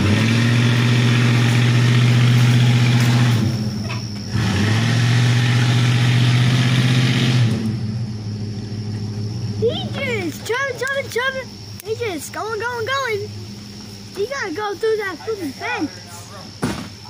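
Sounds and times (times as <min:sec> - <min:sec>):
engine revving: 0:00.0 - 0:11.6.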